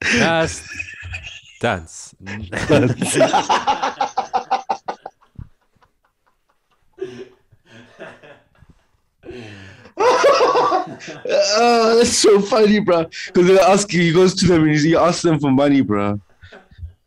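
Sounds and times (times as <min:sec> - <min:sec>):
men laughing hard: 0:00.0 - 0:08.7, 0:09.9 - 0:12.0.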